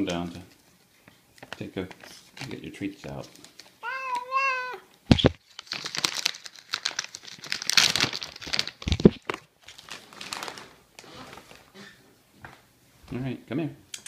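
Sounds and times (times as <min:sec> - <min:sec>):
plastic bag crinkling: 0:05.1 - 0:11.7.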